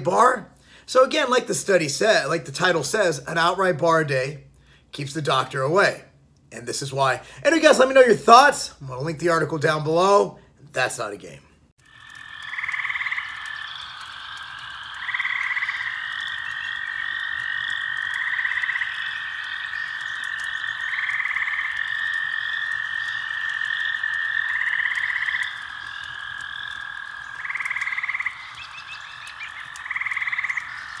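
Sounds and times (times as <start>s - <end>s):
frogs calling in pulsed trills: 11.8s - 31.0s.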